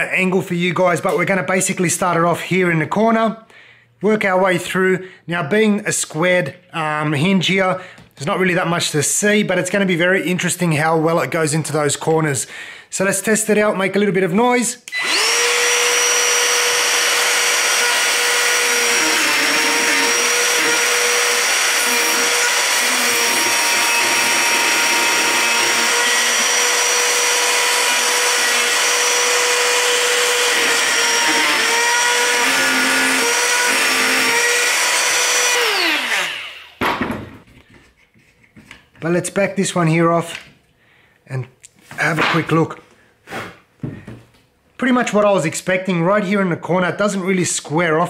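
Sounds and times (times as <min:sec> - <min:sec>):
router whining: 0:14.9 - 0:36.8.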